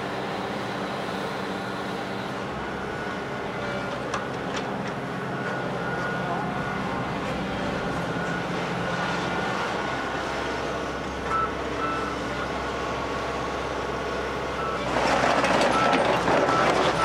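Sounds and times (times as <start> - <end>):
diesel engine running: 0.0 - 17.0
loud rough noise: 14.8 - 17.0.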